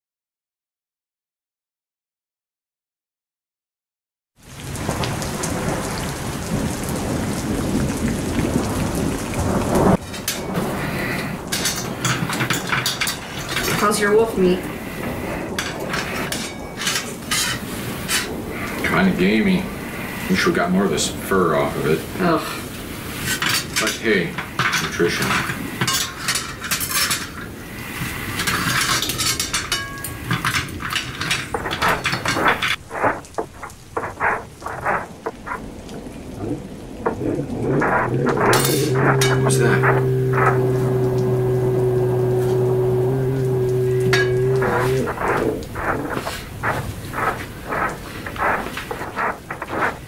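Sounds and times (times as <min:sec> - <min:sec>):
rolling thunder: 0:04.4 - 0:23.1, 0:27.4 - 0:50.0
steady rain: 0:04.4 - 0:50.0
cutlery scraping and clinking on plates: 0:11.5 - 0:14.0, 0:15.6 - 0:18.3, 0:23.2 - 0:27.4, 0:28.4 - 0:35.0, 0:37.9 - 0:40.5
forks clinking on plates: 0:25.8 - 0:27.4, 0:28.6 - 0:32.4.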